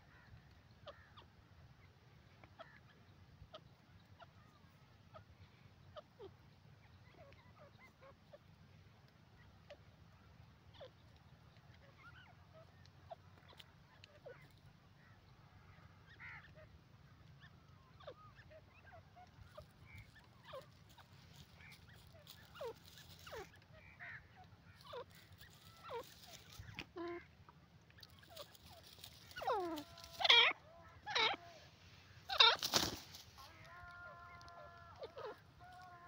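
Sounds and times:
francolin calling: 17.4s - 27.4s, 28.0s - 36.0s.

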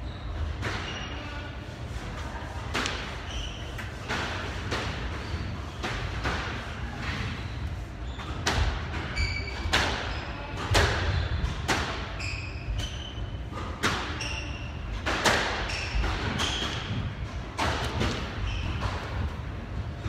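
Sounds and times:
sneaker squeaks on wooden floor: 0.0s - 1.5s, 3.1s - 4.0s, 7.1s - 11.5s, 12.1s - 17.1s, 17.9s - 19.3s
squash ball hits echoing: 8.4s - 12.2s, 14.9s - 19.3s.

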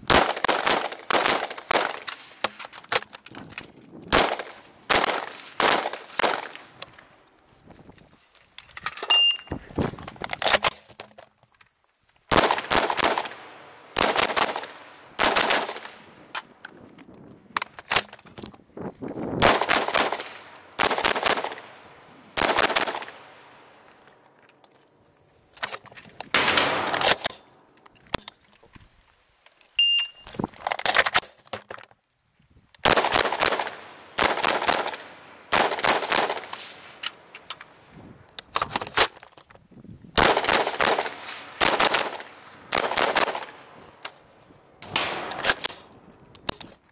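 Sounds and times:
rifle shots: 0.0s - 3.0s, 4.1s - 6.8s, 12.3s - 16.2s, 19.4s - 23.8s, 26.3s - 27.4s, 32.8s - 37.7s, 40.2s - 44.1s, 44.8s - 46.0s
short electronic beep: 9.1s - 9.6s, 29.8s - 30.3s.

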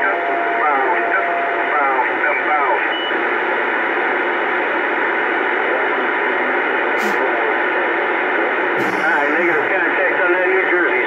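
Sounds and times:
faint garbled radio voices: 0.0s - 11.0s
radio static hiss: 0.0s - 11.0s.

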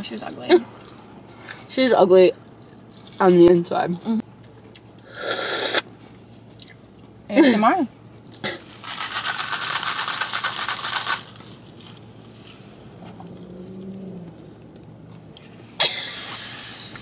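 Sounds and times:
rattling slurp through a straw: 8.7s - 11.6s.

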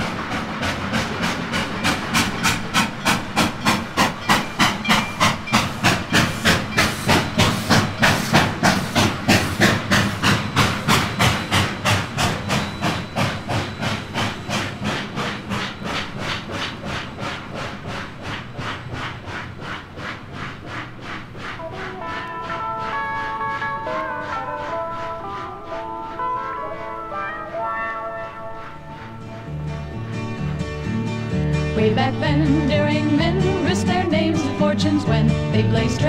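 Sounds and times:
steam hissing: 0.0s - 36.0s
steam locomotive chuffing: 0.0s - 36.0s.

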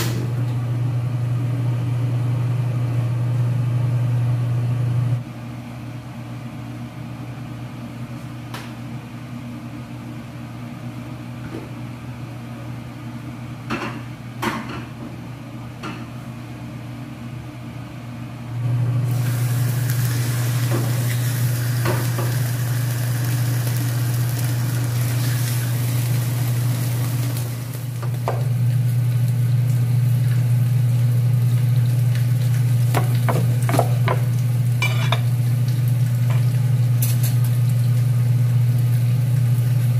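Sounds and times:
fish sizzling in hot oil: 19.1s - 28.1s
kitchenware knocks: 33.0s - 34.2s.

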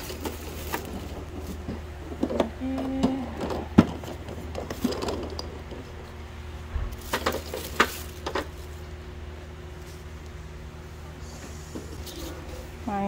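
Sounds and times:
steady low hum: 0.0s - 13.0s
plastic bag crinkling: 7.0s - 8.8s.

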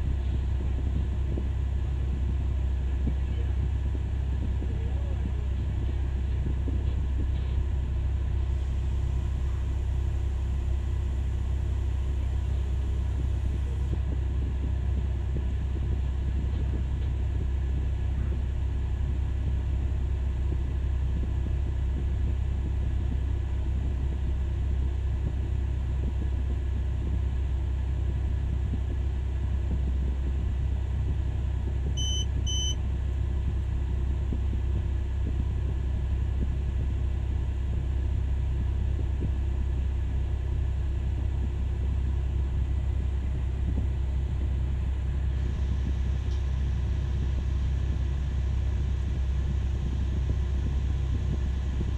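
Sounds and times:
diesel engine deep rumble: 0.0s - 51.9s
short high beeps: 32.0s - 32.8s.

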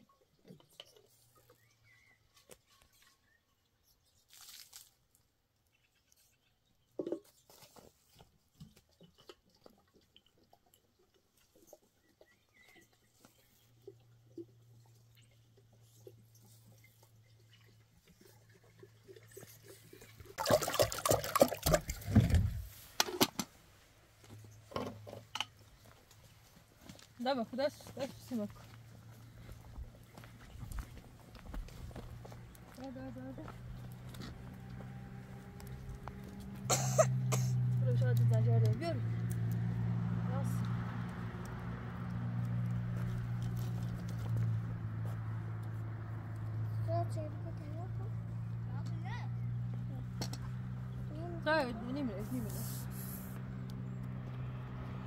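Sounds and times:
faint bird chirp: 0.7s - 4.3s, 12.0s - 13.6s
water pouring and splashing: 4.2s - 5.2s, 13.0s - 23.1s.

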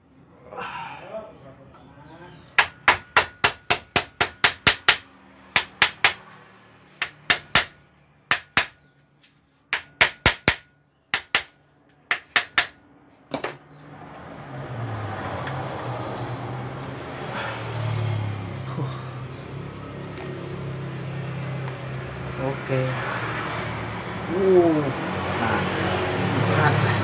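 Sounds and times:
hammer tapping on metal: 2.6s - 6.3s, 7.0s - 8.8s, 9.7s - 13.6s.

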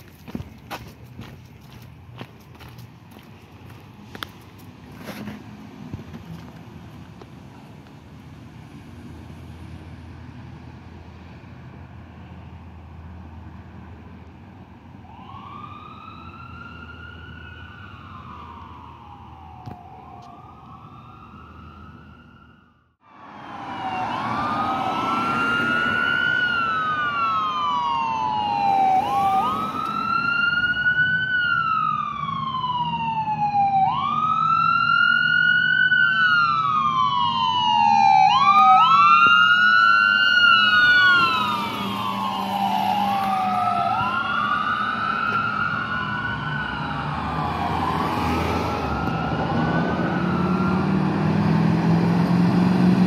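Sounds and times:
fire engine siren wailing: 12.2s - 53.0s.

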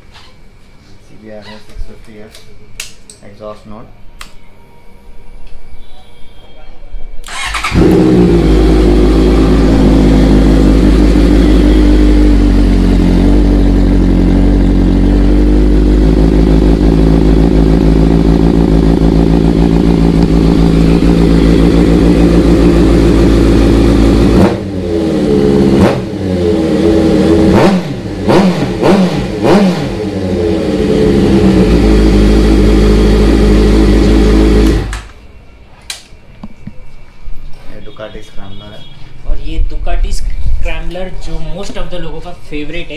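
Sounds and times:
motorcycle engine idling: 7.3s - 25.7s
engine revving: 7.3s - 35.1s.

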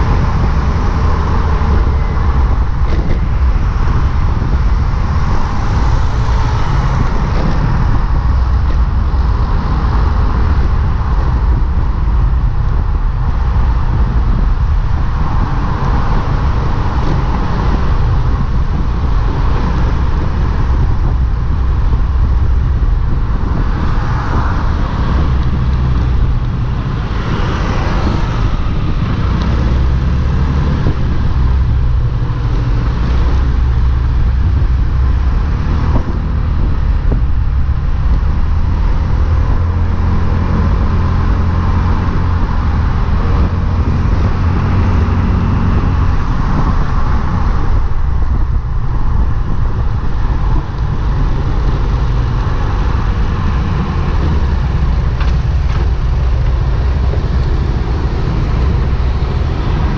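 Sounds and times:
road and engine noise: 0.0s - 59.9s
wind rumble on microphone: 0.0s - 59.9s
nearby traffic passing: 50.5s - 59.9s.

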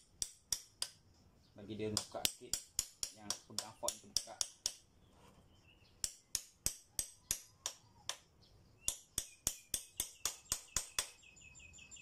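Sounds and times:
hammer tapping metal wedge: 0.0s - 1.0s, 1.9s - 4.9s, 6.0s - 8.2s, 8.9s - 11.1s.

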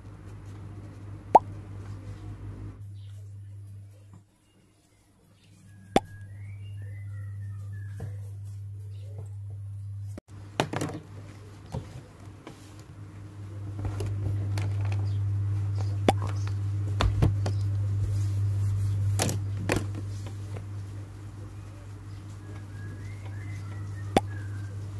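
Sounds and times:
low hum: 5.6s - 10.2s, 12.9s - 24.9s.

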